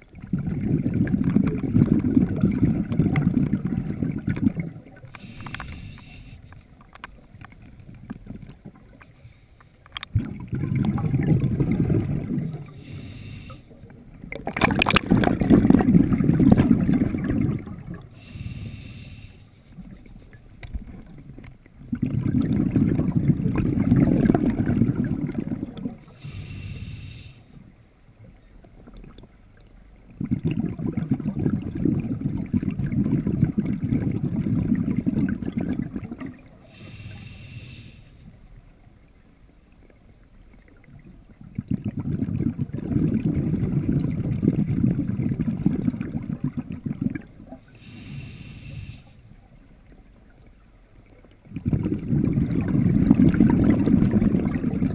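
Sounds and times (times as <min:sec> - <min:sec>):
underwater exhaled bubbles rumbling: 0:00.0 - 0:09.1, 0:09.9 - 0:39.1, 0:39.7 - 0:54.9
hissing regulator inhalations: 0:05.1 - 0:06.7, 0:12.7 - 0:13.8, 0:18.1 - 0:19.8, 0:26.0 - 0:27.6, 0:36.6 - 0:38.3, 0:47.7 - 0:49.3.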